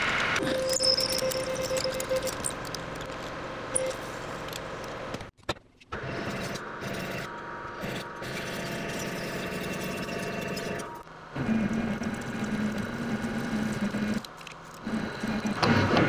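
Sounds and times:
faint machine hum: 0.0 - 16.0.

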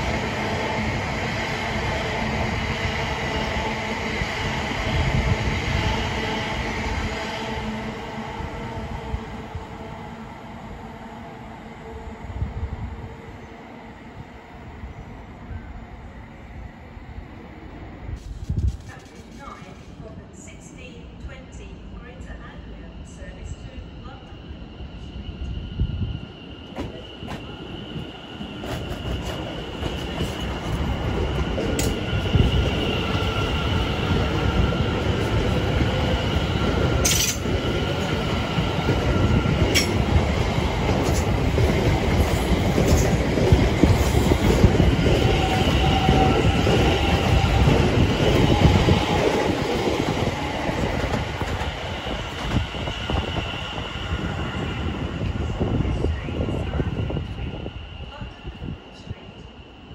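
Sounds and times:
train wheels rumbling on rails: 18.1 - 21.6, 25.4 - 59.2.

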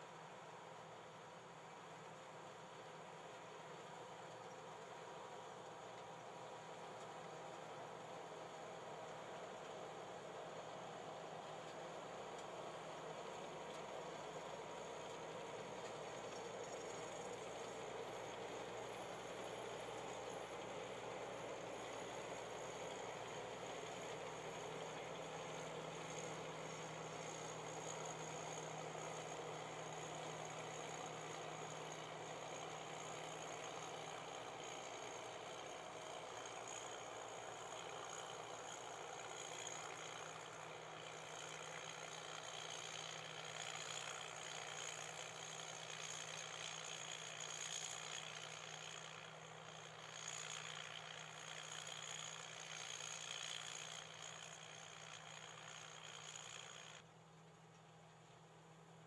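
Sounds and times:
combine harvester engine hum: 0.0 - 59.0.

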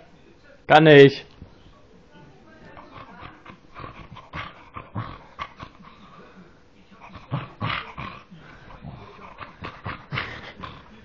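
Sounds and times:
dog grunting growls: 2.8 - 6.3, 7.0 - 11.0.

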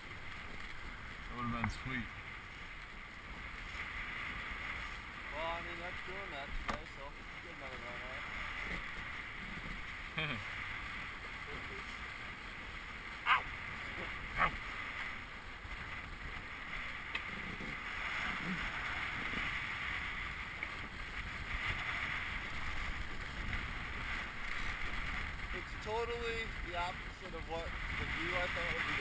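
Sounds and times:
water rushing along hull: 0.0 - 29.0
wind noise on microphone: 7.4 - 29.0.

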